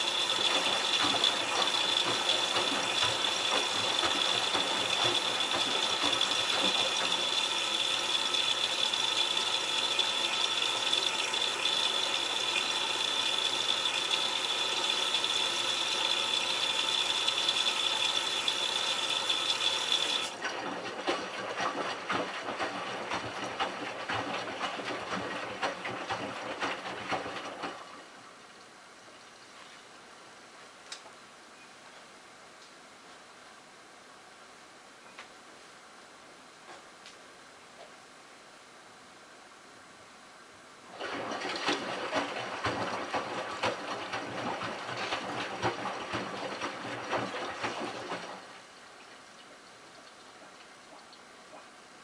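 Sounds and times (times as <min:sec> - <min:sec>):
water spraying into washer drum: 0:00.0 - 0:27.9, 0:40.9 - 0:48.6.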